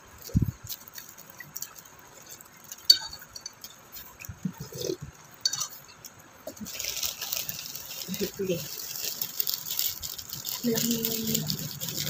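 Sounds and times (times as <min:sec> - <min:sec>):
utensil clinking on plate: 0:02.3 - 0:04.8.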